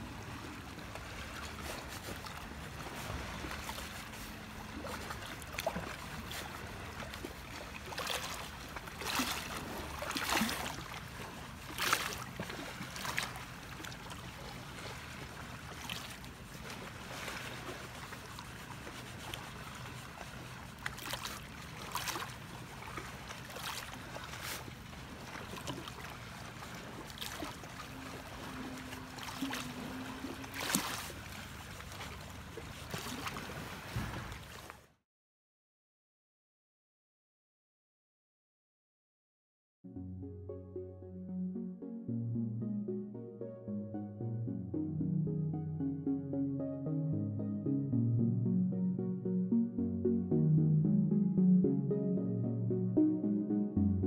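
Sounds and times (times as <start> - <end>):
waves lapping on rocks: 0.0 - 34.8
low steady hum: 24.9 - 32.6, 39.9 - 54.0.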